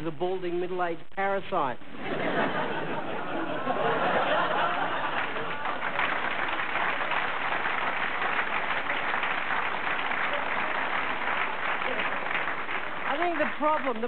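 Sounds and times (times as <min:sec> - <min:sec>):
audience laughing: 0:01.9 - 0:07.6
audience applauding: 0:02.5 - 0:14.0.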